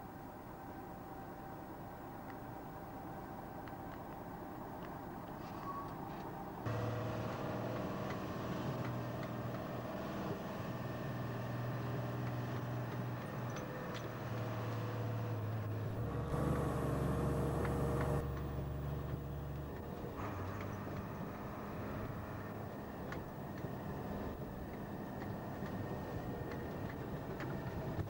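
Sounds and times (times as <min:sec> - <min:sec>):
diesel lorry engine running: 0:06.6 - 0:28.0.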